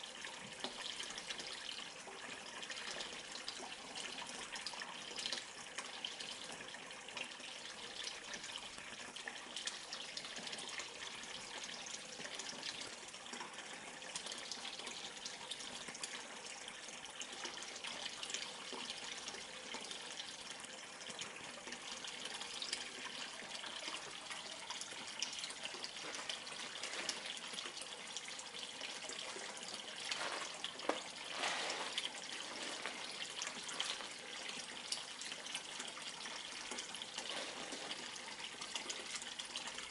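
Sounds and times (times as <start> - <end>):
water pouring into a pond: 0.0 - 39.9
water splashing: 25.6 - 28.2, 28.8 - 35.2, 36.3 - 39.2.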